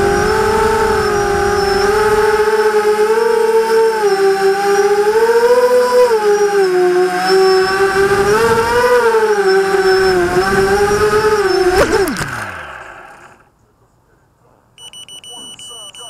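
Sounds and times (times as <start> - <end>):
quadcopter motors whining: 0.0 - 13.5
drone knocking down on grass: 9.8 - 13.3.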